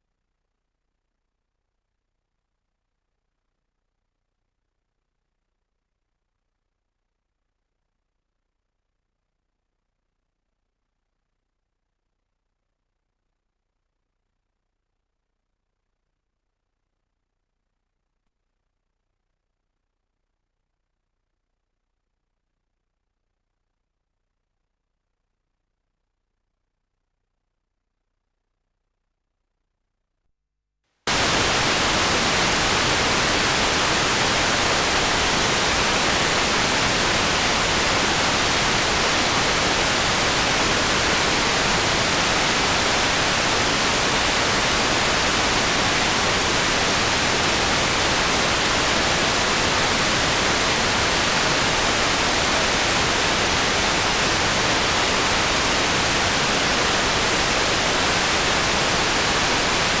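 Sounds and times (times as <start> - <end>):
loud static hiss: 31.1 - 60.0.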